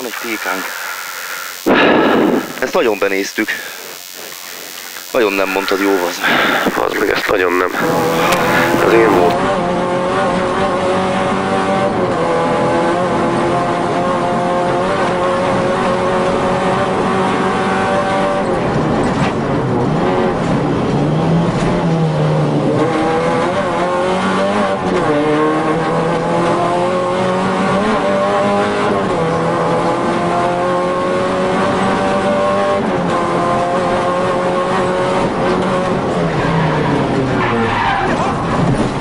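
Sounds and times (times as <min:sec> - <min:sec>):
rally car engine revving: 0:00.0 - 0:39.0.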